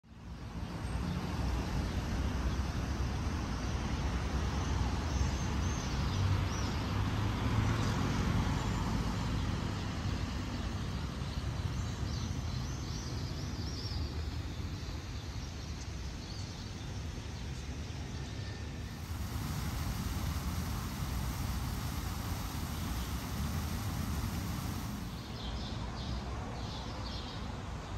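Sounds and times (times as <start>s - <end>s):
low rumble of road traffic: 0.1s - 27.9s
fountain jets splashing: 18.9s - 25.4s
birds chirping: 18.9s - 25.6s.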